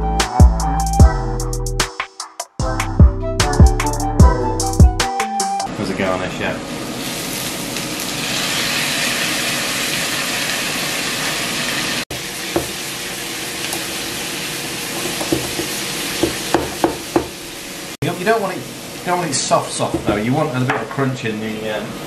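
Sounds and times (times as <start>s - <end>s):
vegetables sizzling in a wok: 6.7s - 20.7s
spatula knocking against pan: 15.2s - 17.3s.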